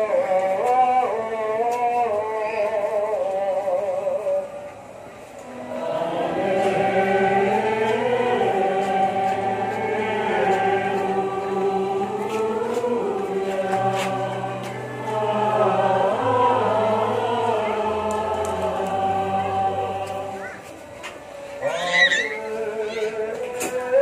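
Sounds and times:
choir and congregation singing hymn: 0.0 - 4.5, 5.4 - 20.8, 21.6 - 24.0.

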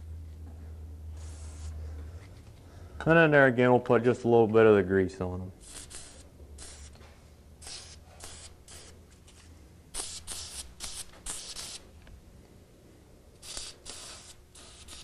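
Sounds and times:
aerosol spray hissing bursts: 1.2 - 1.7, 5.6 - 7.0, 7.6 - 8.9, 10.0 - 11.8, 13.4 - 15.0.

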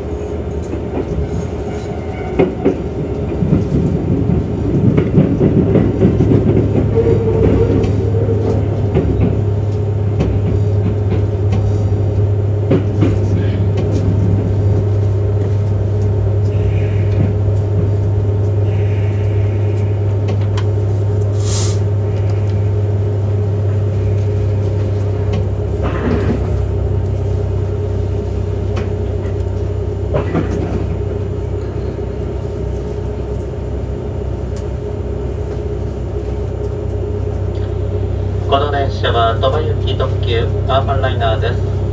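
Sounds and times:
train low hum: 0.0 - 41.9
air hiss: 21.3 - 21.9.

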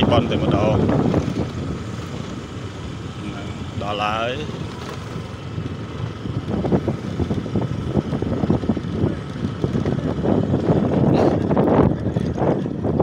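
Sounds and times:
scooter engine rumbling: 0.0 - 13.0.

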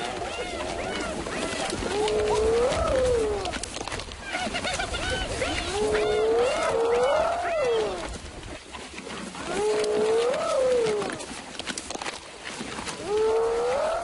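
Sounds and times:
animal moaning calls: 0.0 - 3.6, 5.5 - 8.1, 9.4 - 11.2, 13.0 - 14.0.

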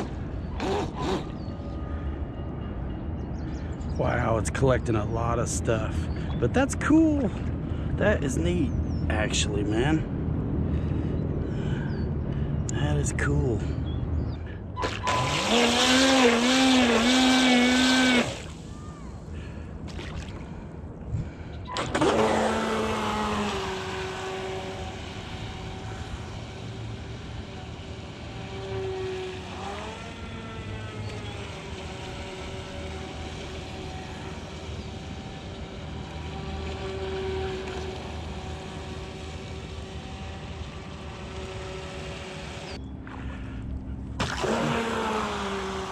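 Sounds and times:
electric boat motor whining: 0.0 - 3.9, 14.8 - 19.7, 21.2 - 45.9
water spraying: 14.8 - 18.6.

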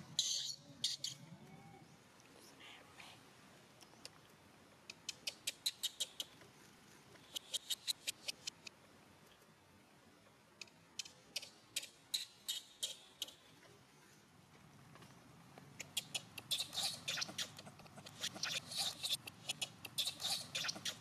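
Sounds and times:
baby monkey squeaking: 0.2 - 1.2, 15.8 - 21.0.

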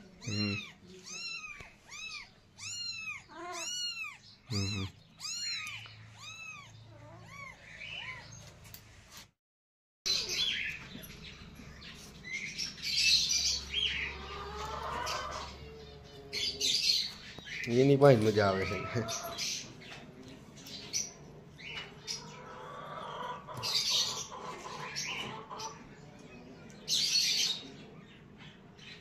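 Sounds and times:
kitten mewing: 0.2 - 7.6
bird chirps: 0.2 - 8.5.

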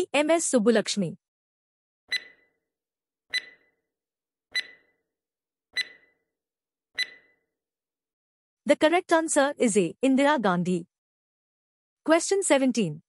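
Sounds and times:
countdown timer ticks with ringing tone: 2.1 - 2.6, 3.3 - 3.8, 4.5 - 5.0, 5.8 - 6.2, 7.0 - 7.4.

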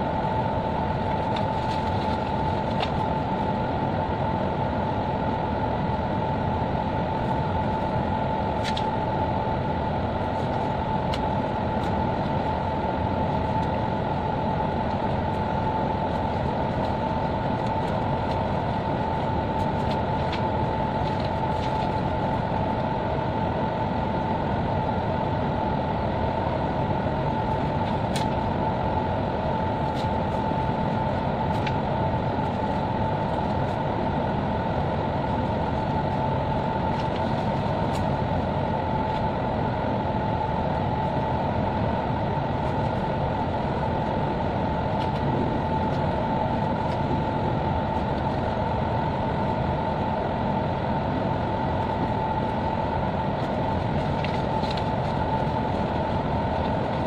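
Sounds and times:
constant whine: 0.0 - 57.0
ship machinery drone: 0.0 - 57.0.

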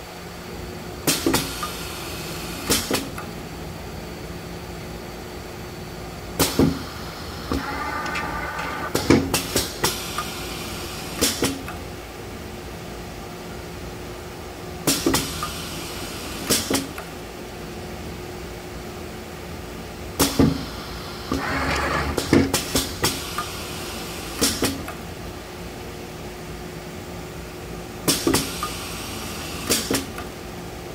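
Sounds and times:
machine humming: 6.6 - 9.6, 20.7 - 23.0.

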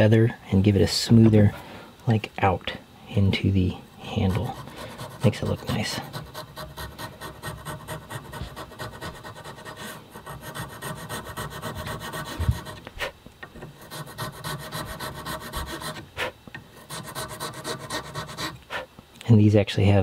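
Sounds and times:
needle file rasping: 4.2 - 18.9.

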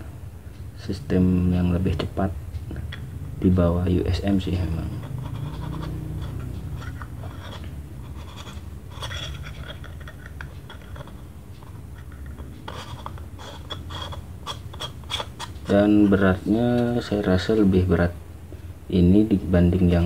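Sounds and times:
low hum: 0.0 - 18.8
fingers scratching plastic lens: 4.1 - 17.5.

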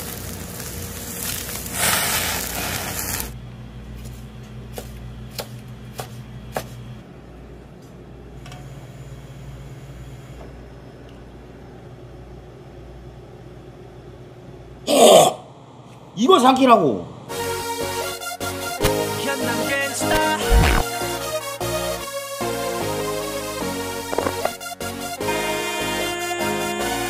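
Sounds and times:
fish sizzling on a grill: 0.0 - 3.4.

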